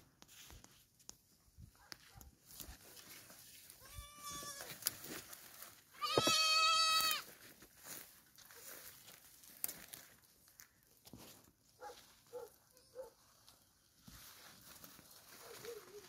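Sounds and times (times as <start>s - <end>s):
goat bleating: 3.8s - 4.8s, 5.9s - 7.3s.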